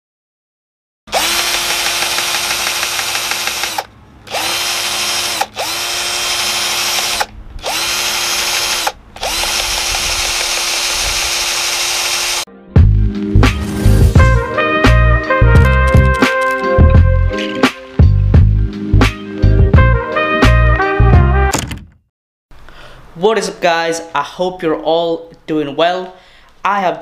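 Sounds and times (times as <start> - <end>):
drill motor whirring: 1.1 - 12.5.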